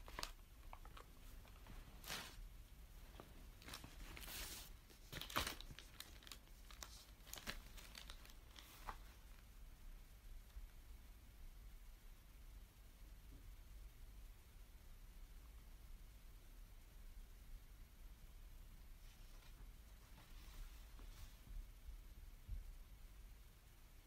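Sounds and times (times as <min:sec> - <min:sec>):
faint rustles and clicks: 0:00.0 - 0:09.6, 0:18.9 - 0:21.8.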